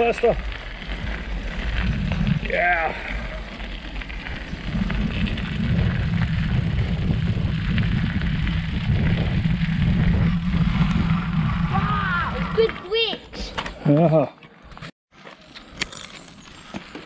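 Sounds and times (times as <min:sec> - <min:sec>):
bike tyres rumbling on gravel: 0:00.0 - 0:17.0.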